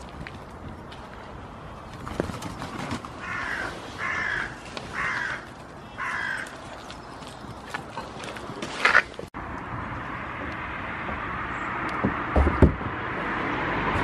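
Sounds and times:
bird cawing: 3.0s - 6.9s.

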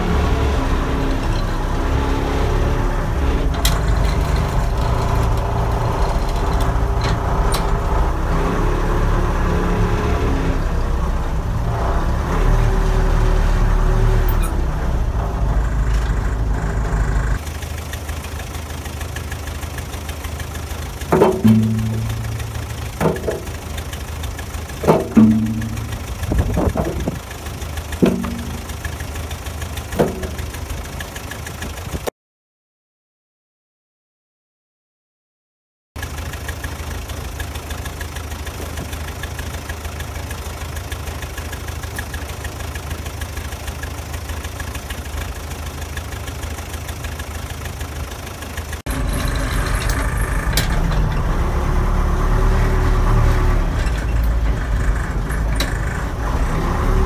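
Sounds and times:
backhoe engine running: 0.0s - 32.1s, 36.0s - 57.0s
logs clunking into steel bucket: 21.0s - 24.0s, 24.6s - 27.3s, 27.9s - 29.1s, 30.0s - 30.8s
sharp machine knocks: 21.1s - 23.9s, 24.8s - 27.2s, 28.0s - 28.9s, 30.0s - 30.6s.

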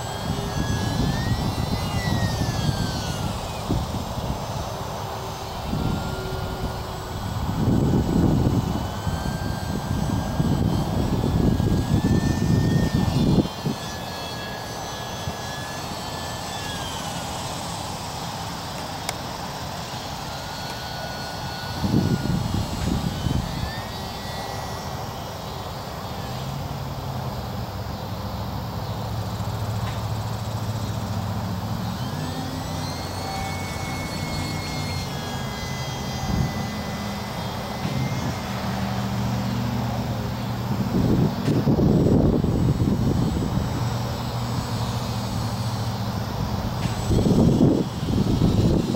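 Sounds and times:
wind buffeting microphone: 0.0s - 4.7s, 5.5s - 13.8s, 21.7s - 23.9s, 40.2s - 48.9s
model plane motor whining: 0.0s - 48.9s.

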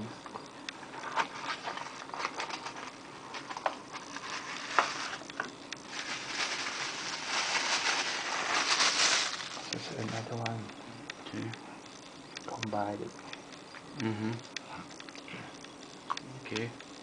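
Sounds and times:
plastic wrap crinkling: 0.9s - 10.5s.

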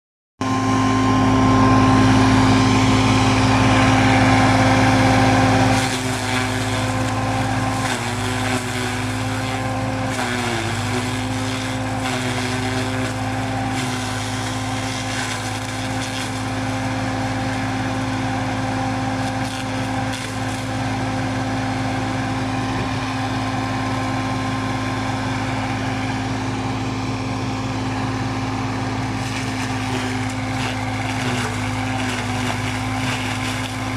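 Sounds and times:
tractor engine humming: 0.4s - 33.9s
corn stalks being shredded: 0.7s - 26.7s, 27.4s - 33.9s.

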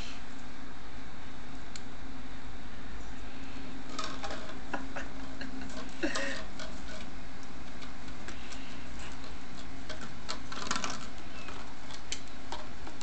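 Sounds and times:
steady low hum: 0.0s - 13.0s
cat eating crunches: 3.3s - 13.0s.

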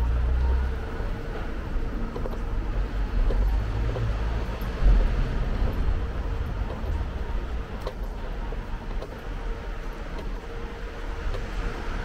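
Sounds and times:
small clicks: 2.1s - 10.6s.

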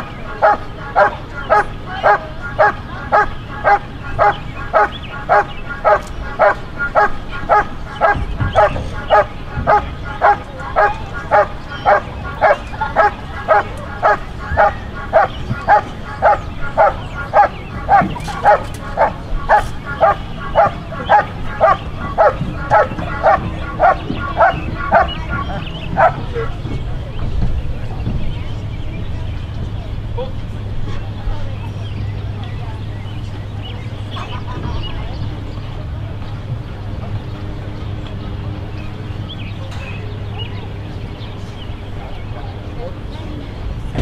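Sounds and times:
dog barking: 0.4s - 26.2s.

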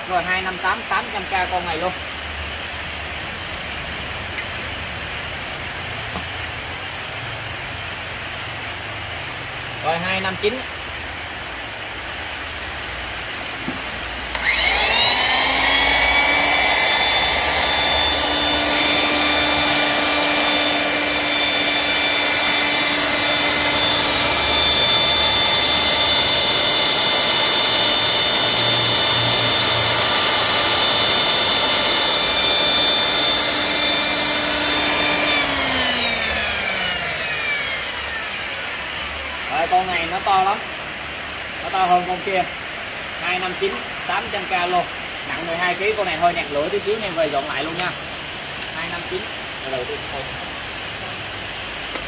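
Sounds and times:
power tool motor whining: 13.7s - 39.5s.

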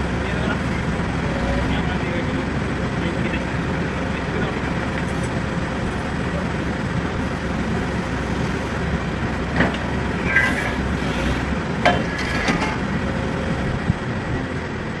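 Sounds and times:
excavator diesel engine running: 0.0s - 15.0s
brief squeak: 10.2s - 11.4s.

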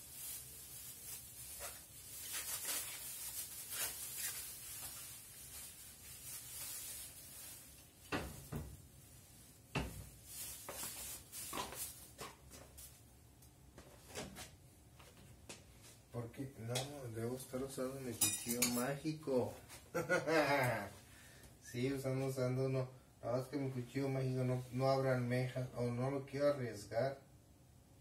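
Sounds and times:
plastic bag rustling: 0.0s - 13.0s.

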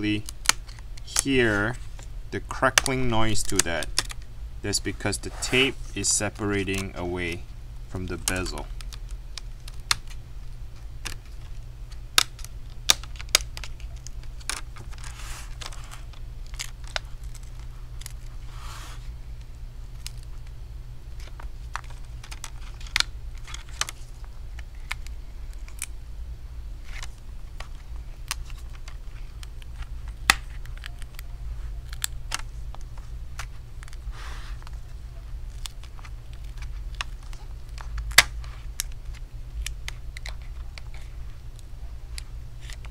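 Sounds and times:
adhesive tape crackling and popping: 0.0s - 5.2s, 5.9s - 18.5s, 19.2s - 26.1s, 26.8s - 42.9s.

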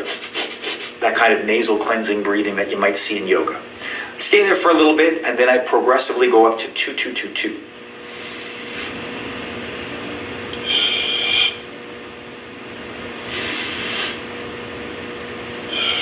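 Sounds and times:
man breathing through nose: 3.8s - 4.2s, 8.1s - 9.0s, 10.6s - 11.6s, 13.2s - 14.3s, 15.6s - 16.0s.

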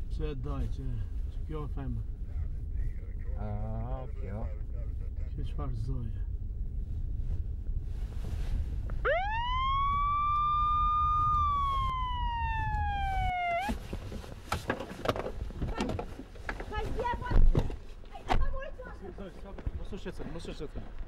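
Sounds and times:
car interior rumble: 0.0s - 19.0s
siren wail: 9.0s - 13.8s.

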